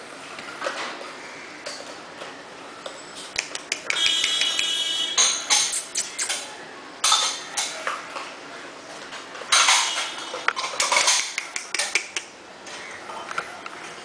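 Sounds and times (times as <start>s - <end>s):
kittens clattering on tile floor: 9.6s - 12.2s.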